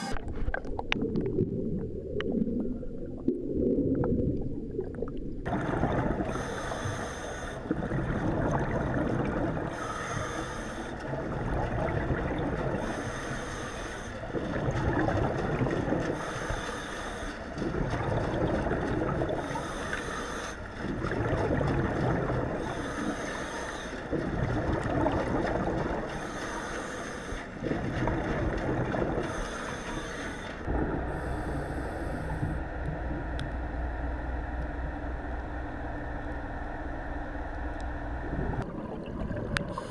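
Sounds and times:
exhale bubbling rumble: 0.0s - 7.0s, 7.6s - 10.0s, 11.0s - 13.1s, 14.2s - 16.7s, 17.4s - 20.0s, 20.6s - 23.2s, 24.0s - 26.4s, 27.4s - 29.4s, 30.6s - 37.0s, 38.0s - 39.9s
low pulsing hum: 0.0s - 39.9s
regulator inhale hiss: 6.3s - 7.7s, 9.7s - 11.0s, 12.8s - 14.2s, 16.2s - 17.5s, 19.4s - 20.7s, 22.6s - 24.0s, 26.1s - 27.5s, 29.2s - 32.6s.

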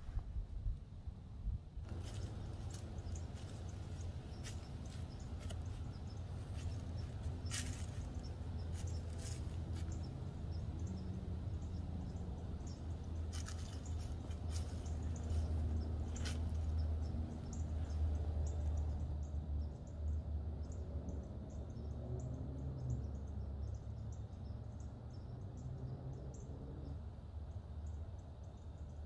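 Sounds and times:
steady low rumble: 0.0s - 21.3s
animal stepping through dry leaves: 1.9s - 9.9s, 13.3s - 16.7s.

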